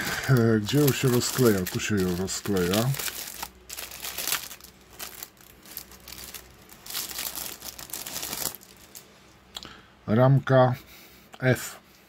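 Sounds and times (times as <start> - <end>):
plastic bag crinkling: 0.0 - 9.1.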